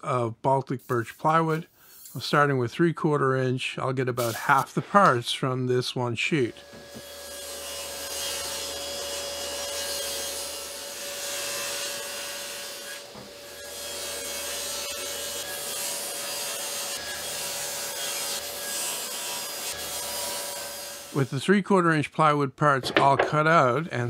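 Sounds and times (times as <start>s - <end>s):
saw blade cutting plywood: 6.5s - 21.2s.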